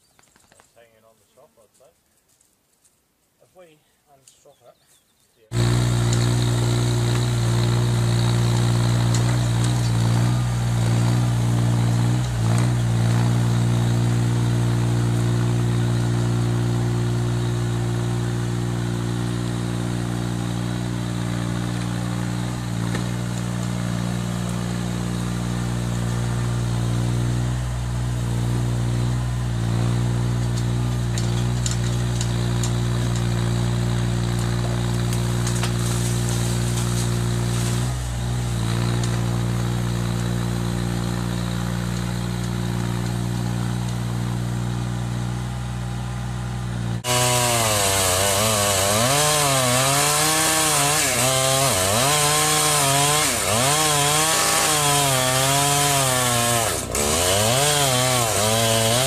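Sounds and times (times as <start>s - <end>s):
diesel engine running: 5.6s - 48.0s.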